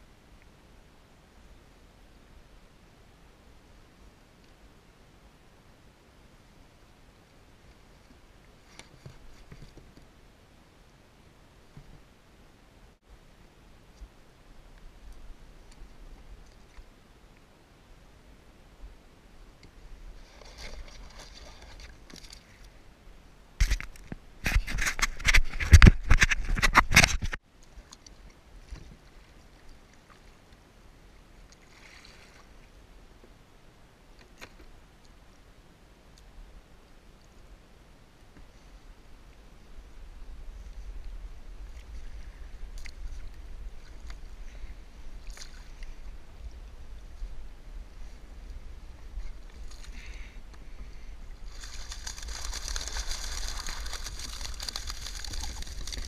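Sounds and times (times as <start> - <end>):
gear scraping against plastic kayak: 24.5 - 27.4, 51.5 - 56.0
water splashing and dripping: 51.4 - 56.0
sharp splashy ticks: 51.5 - 56.0.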